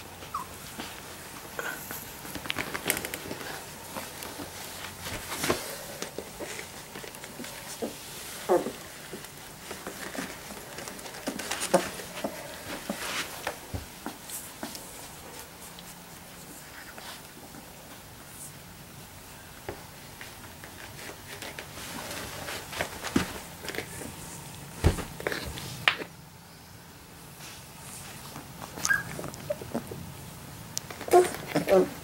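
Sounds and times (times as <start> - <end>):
puppies rustling on blanket: 0.0 - 25.8, 27.3 - 32.0
puppy squeaks: 0.3 - 0.6, 28.8 - 29.7.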